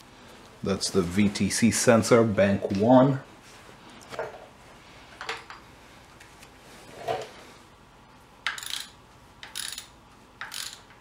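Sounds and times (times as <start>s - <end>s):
ratchet wrench clicking: 8.4s - 11.0s.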